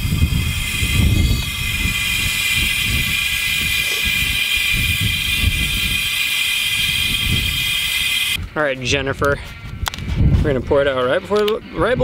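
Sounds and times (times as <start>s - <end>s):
gas canister hissing: 0.0s - 8.4s.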